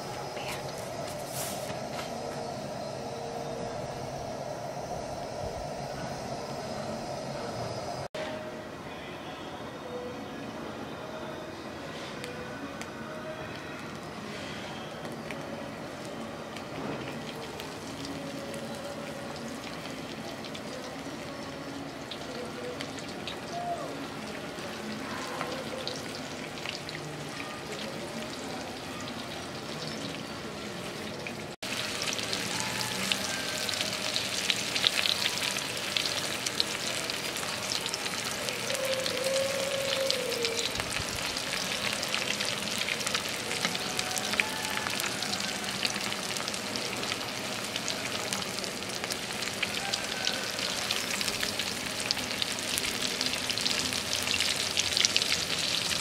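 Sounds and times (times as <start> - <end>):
fish deep-frying in oil: 13.8 - 56.0.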